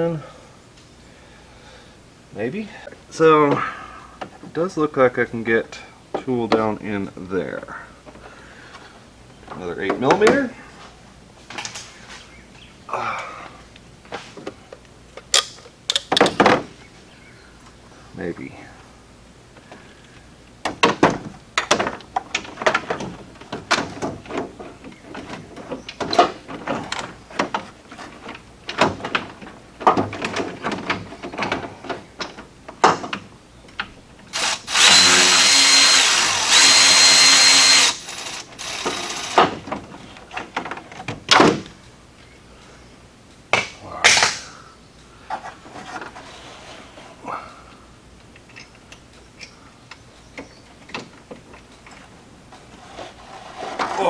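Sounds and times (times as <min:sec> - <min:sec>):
cordless drill running: 0:34.3 - 0:39.4.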